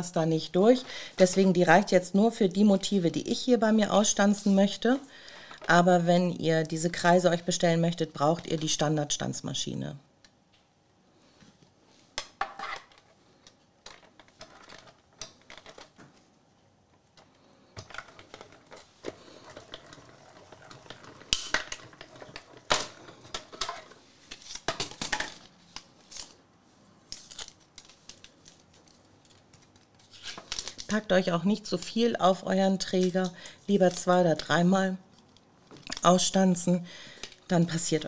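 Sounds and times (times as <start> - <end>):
plastic rustling: 13.8 - 16.4, 17.1 - 26.4, 27.0 - 36.3.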